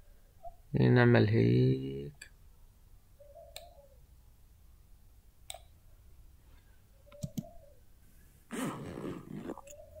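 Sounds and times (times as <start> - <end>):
faint computer mouse clicks: 3.5 - 3.8, 7.1 - 7.5.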